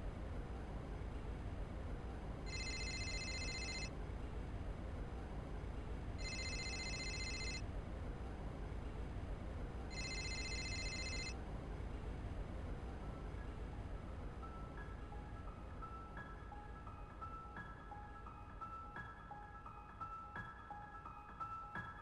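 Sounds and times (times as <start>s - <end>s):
low hiss and hum: 0.0s - 22.0s
electronic phone ringtone: 2.5s - 3.9s, 6.2s - 7.6s, 9.9s - 11.4s.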